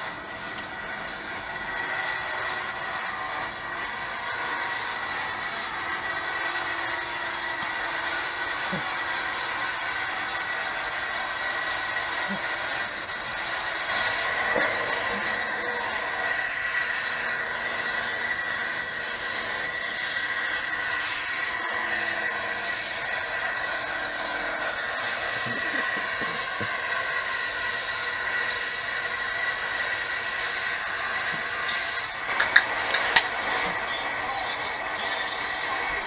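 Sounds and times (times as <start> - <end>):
tractor diesel engine under full load: 0.0 - 36.0.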